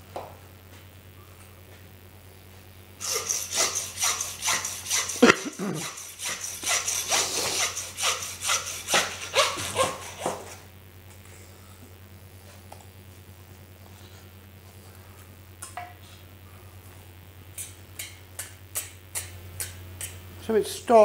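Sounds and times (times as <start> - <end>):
hand saw rasping through bone: 3.0 - 10.6.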